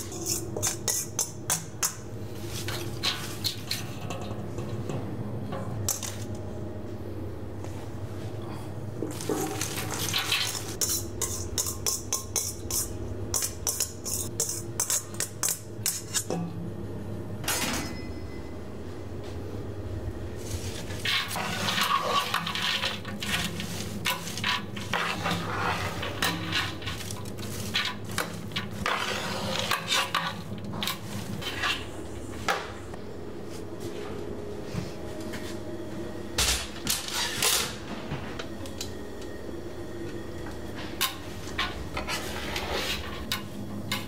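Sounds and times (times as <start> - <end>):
metal utensil scraping a pot: 0.0 - 1.4, 20.8 - 32.0.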